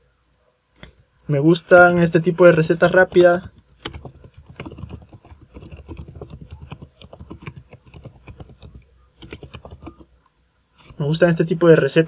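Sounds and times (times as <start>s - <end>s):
typing on computer keyboard: 2.5s - 10.1s.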